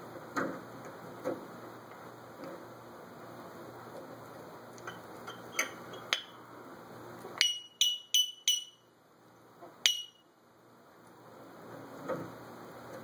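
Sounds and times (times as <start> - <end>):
parrot ringing pings: 7.4 - 8.9, 9.9 - 10.3.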